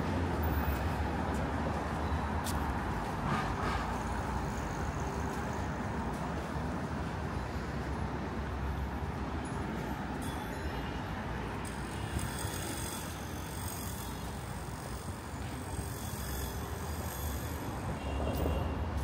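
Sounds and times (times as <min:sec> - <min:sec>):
vehicles passing: 0:00.0 - 0:19.0.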